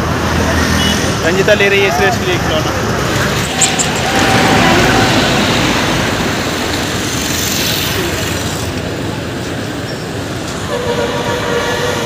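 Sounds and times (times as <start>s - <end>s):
busy city road traffic: 0.0s - 12.0s.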